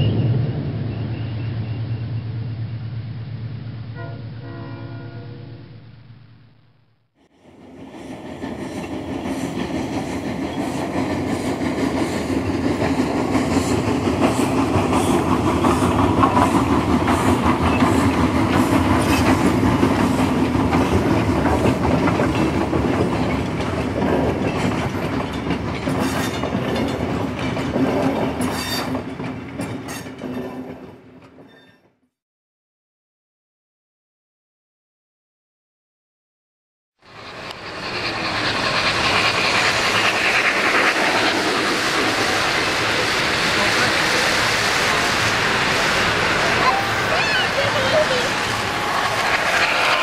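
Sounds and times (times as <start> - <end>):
model train rumbling on track: 7.3 - 31.4, 37.0 - 50.0.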